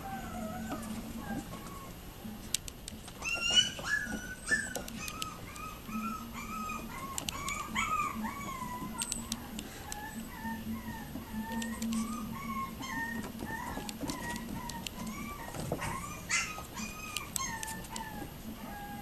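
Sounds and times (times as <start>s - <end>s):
puppies yelping and whining: 0.0s - 2.4s, 3.0s - 19.0s
sharp clicks: 2.5s - 3.2s, 4.5s - 5.7s, 7.0s - 7.7s, 8.9s - 10.2s, 11.4s - 12.1s, 13.2s - 15.6s.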